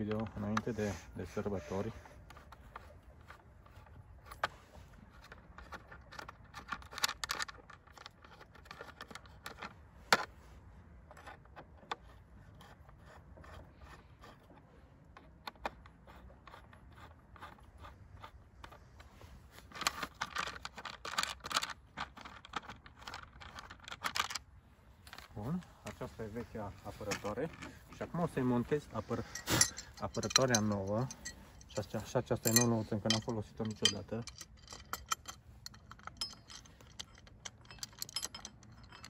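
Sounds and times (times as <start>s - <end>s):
wrench scraping and clicking on screws: 0.0s - 10.3s, 11.0s - 24.4s, 25.0s - 39.0s.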